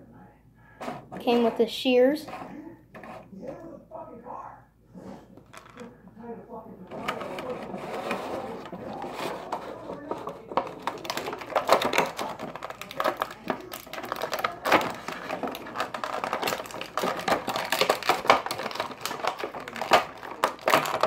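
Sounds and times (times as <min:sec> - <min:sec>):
plastic packaging crackling: 0:06.9 - 0:21.0.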